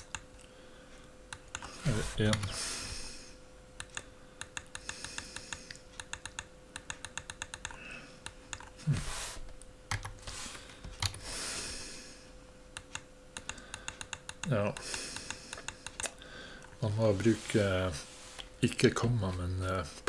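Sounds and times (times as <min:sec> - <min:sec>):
typing on computer keyboard: 0:03.8 - 0:07.8, 0:09.9 - 0:10.2, 0:12.8 - 0:16.1.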